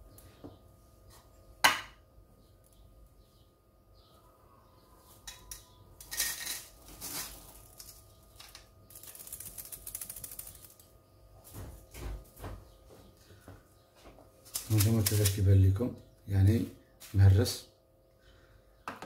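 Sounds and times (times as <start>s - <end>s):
ice pieces rattling into bowl: 6.0s - 10.7s.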